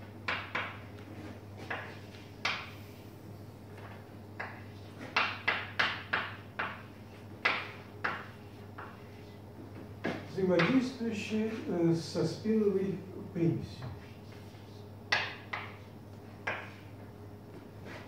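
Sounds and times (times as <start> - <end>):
chalk tapping on blackboard: 0.2 - 2.7, 3.8 - 9.2, 14.0 - 16.9.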